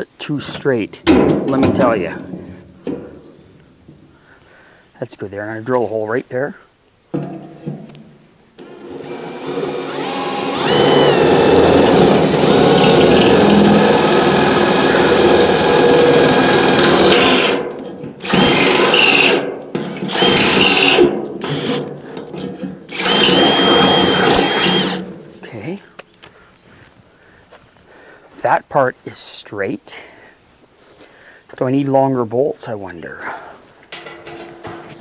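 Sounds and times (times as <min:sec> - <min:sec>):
electric drill boring through metal: 0:08.6 - 0:21.9, 0:22.9 - 0:25.2.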